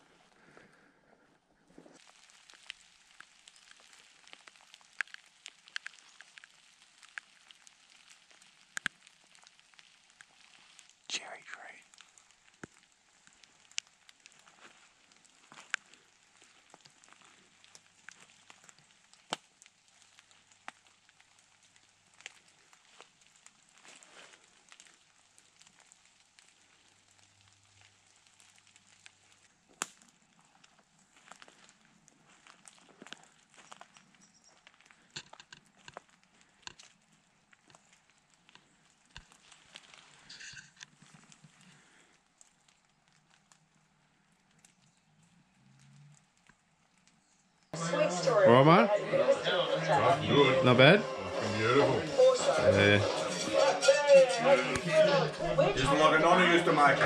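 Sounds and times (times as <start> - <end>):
crackling footsteps through wet bush: 2.0 - 57.0
footsteps on dry leaves: 12.3 - 19.0, 22.4 - 25.9.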